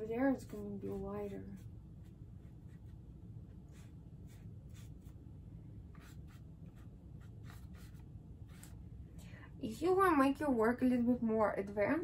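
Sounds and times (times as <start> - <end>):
low room hum: 0.0 - 12.0
paintbrush swishing on paper: 0.3 - 5.2, 5.9 - 8.8.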